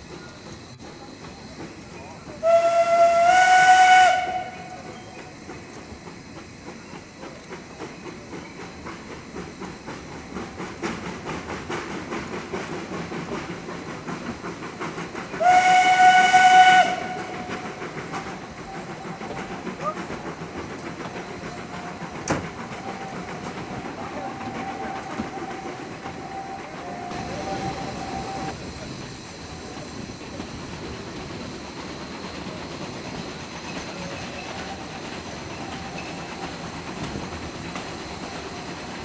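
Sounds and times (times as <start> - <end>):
steam engine exhaust beats: 0.0 - 39.0
steam locomotive whistle: 2.4 - 5.0, 15.4 - 19.8, 21.4 - 28.6.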